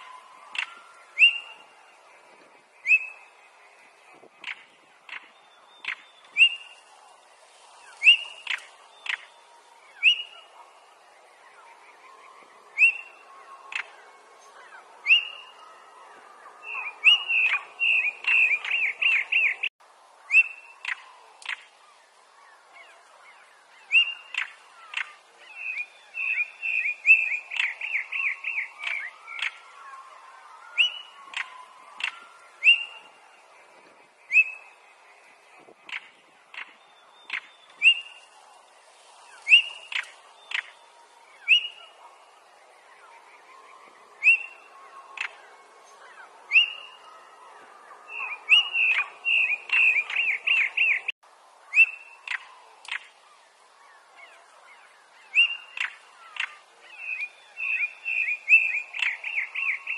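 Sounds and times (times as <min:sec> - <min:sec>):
bird whistles and ticking clicks: 0:04.4 - 0:06.6, 0:07.9 - 0:09.3, 0:20.3 - 0:21.7, 0:27.5 - 0:29.6, 0:30.8 - 0:32.9, 0:35.8 - 0:38.0, 0:39.5 - 0:40.7, 0:51.8 - 0:53.1, 0:55.4 - 0:56.6.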